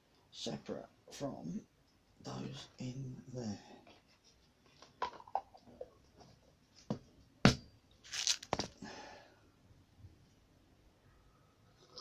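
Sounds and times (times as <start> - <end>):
plastic bag rustling: 8.0 - 8.8.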